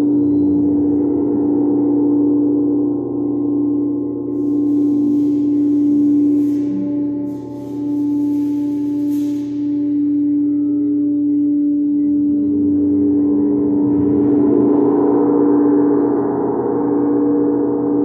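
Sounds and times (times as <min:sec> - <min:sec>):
singing bowl humming: 0:00.0 - 0:18.0.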